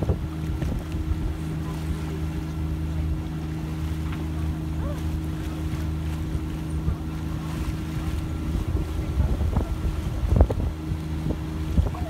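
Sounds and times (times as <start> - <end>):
boat engine running: 0.0 - 12.0
wind buffeting microphone: 0.0 - 12.0.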